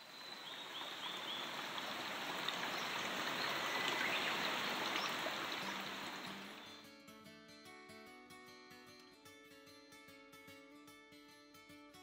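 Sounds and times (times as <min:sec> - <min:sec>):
steady rushing water: 0:00.0 - 0:06.8.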